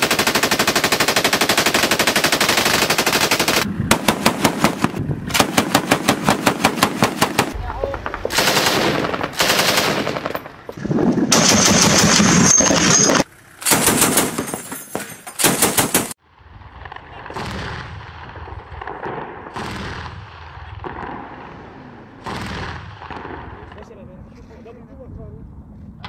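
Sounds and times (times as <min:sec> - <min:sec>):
distant gunfire shots: 0:00.0 - 0:07.6, 0:17.3 - 0:23.7
machine guns firing bursts: 0:00.0 - 0:07.6, 0:08.3 - 0:10.4, 0:11.3 - 0:14.6, 0:15.4 - 0:16.2.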